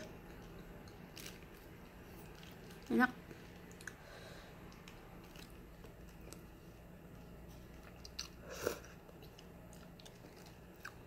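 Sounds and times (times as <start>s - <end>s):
person chewing: 3.5s - 11.0s.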